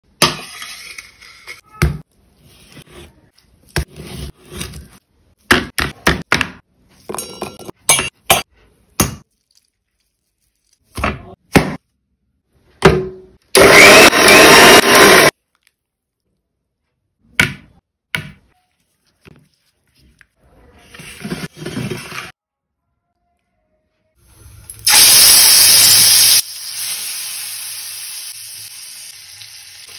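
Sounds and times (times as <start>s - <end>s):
marinade worked over chicken: 8.5s - 12.2s.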